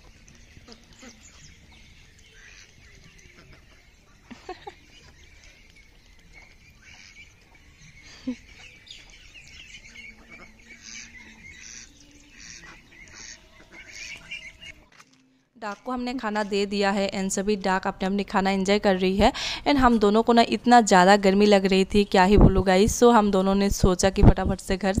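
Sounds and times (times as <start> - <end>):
ducks quacking and chirping: 0.0 - 14.9.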